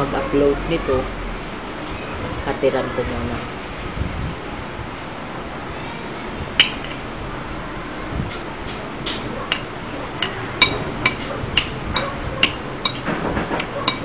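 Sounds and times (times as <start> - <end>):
cutlery clinking on a plate: 8.7 - 14.0.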